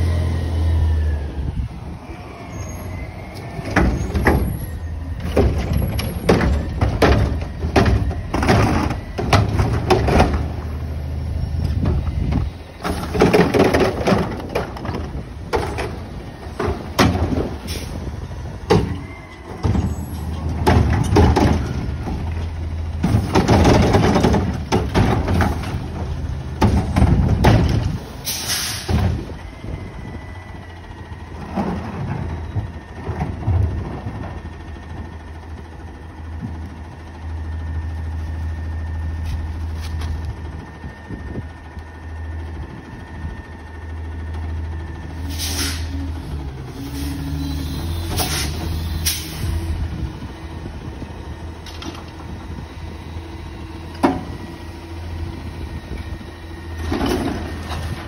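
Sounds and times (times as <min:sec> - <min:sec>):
garbage truck engine revving: 0:00.0 - 0:58.0
metal clanks and bangs: 0:03.6 - 0:10.6, 0:18.6 - 0:22.3, 0:22.9 - 0:29.3.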